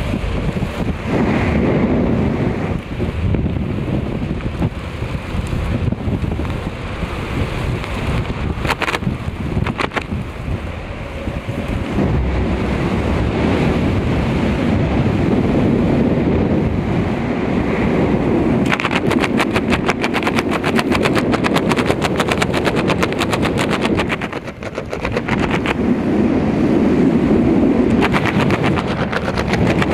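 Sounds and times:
airflow rushing over microphone: 0.0s - 29.9s
rapid flapping rattle: 4.2s - 10.4s, 18.6s - 26.0s, 27.8s - 29.9s.

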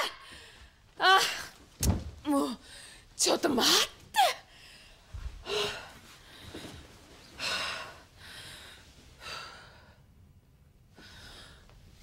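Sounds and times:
woman breathing hard: 4.4s - 10.3s.

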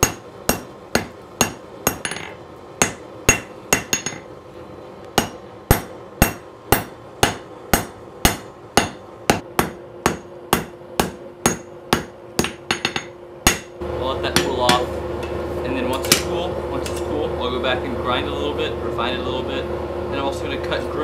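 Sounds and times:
hammer ringing on anvil: 0.0s - 4.3s, 5.2s - 13.8s
steady hum: 0.0s - 21.0s.

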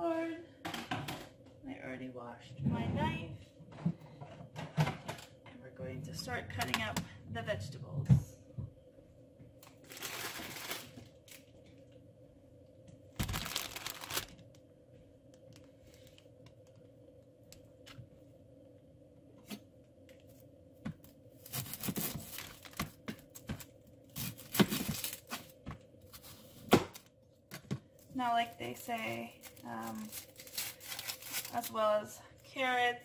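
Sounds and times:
plastic packaging crinkling and tearing: 9.6s - 11.5s, 13.1s - 14.6s, 21.4s - 27.1s, 28.2s - 32.0s.

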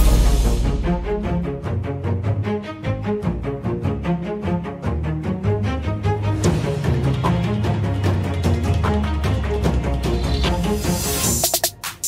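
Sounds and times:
drum-backed music: 0.0s - 1.8s, 6.2s - 12.0s.

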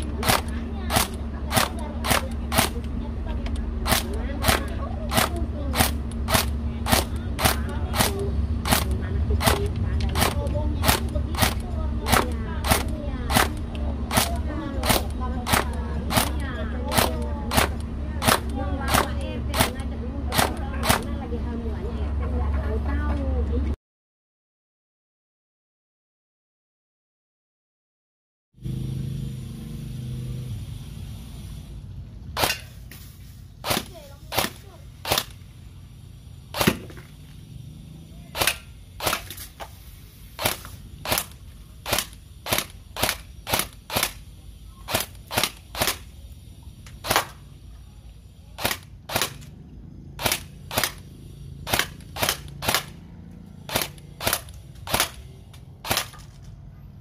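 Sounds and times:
airsoft gun shots: 0.0s - 2.9s, 3.8s - 21.1s, 32.4s - 35.4s, 36.5s - 37.2s, 38.3s - 46.1s, 46.9s - 47.4s, 48.6s - 49.6s, 50.2s - 56.4s.

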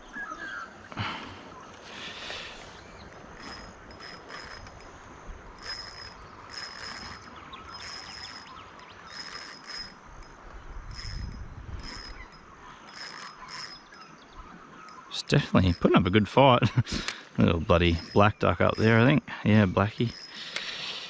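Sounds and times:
fishing reel drag clicking: 2.2s - 15.9s, 17.8s - 19.2s, 19.9s - 21.0s.

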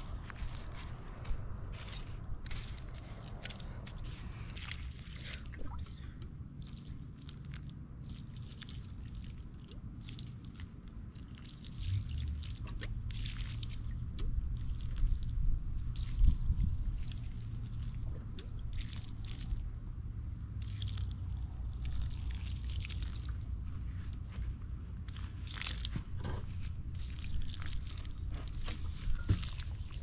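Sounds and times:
low rumble: 0.0s - 8.1s, 8.8s - 30.0s
water splashing on soil: 6.6s - 18.1s, 18.7s - 19.6s, 20.6s - 23.4s, 25.1s - 26.0s, 26.9s - 30.0s.

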